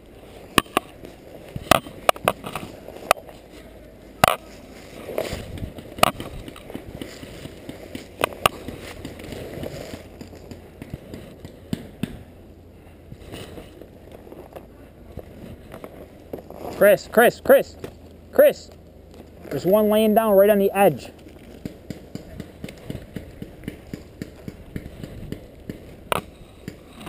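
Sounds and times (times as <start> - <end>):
brush and clothing rustling: 0.2 - 11.4.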